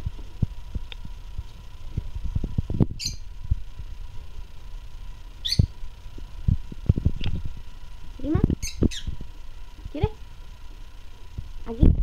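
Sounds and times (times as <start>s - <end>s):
lovebird chirps: 3.0s - 3.3s, 5.4s - 5.8s, 8.6s - 9.2s.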